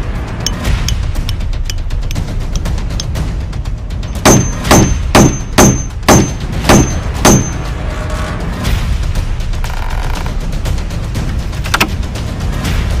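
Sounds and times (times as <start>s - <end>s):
background music: 0.0s - 13.0s
hammer striking a nail: 4.1s - 7.6s.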